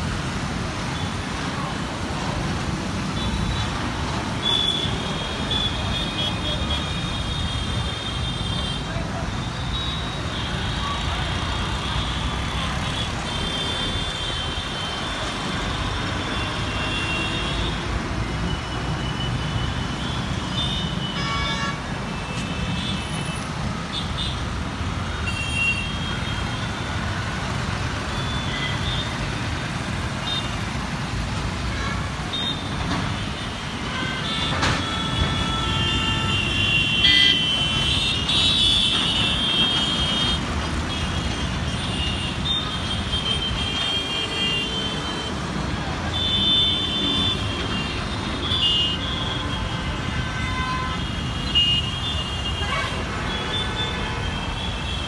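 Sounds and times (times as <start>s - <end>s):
road traffic rumble: 0.0s - 55.0s
vehicle horns honking: 20.5s - 23.4s, 46.1s - 55.0s.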